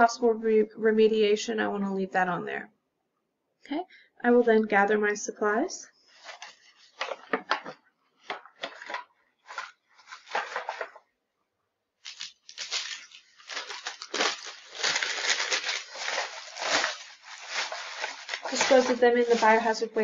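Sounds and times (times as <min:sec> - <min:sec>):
paper wrappers rustling and crumpling: 0:06.1 - 0:11.0, 0:12.0 - 0:20.0.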